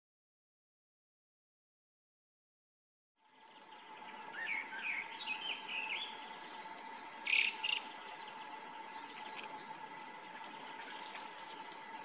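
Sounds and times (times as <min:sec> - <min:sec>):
bunting chirps and ticks: 0:04.4 - 0:12.0.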